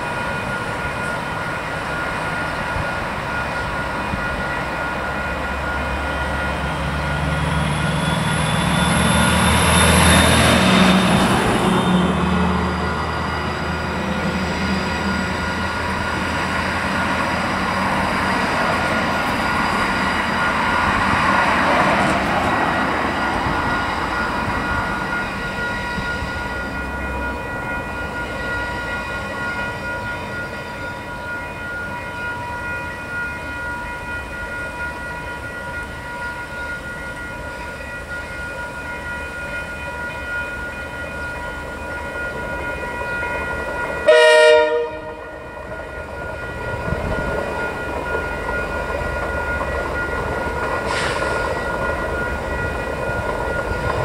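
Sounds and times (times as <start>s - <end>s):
diesel locomotive engine: 0.0s - 54.0s
level crossing alarm ringing: 0.0s - 54.0s
train horn blast: 44.1s - 45.3s.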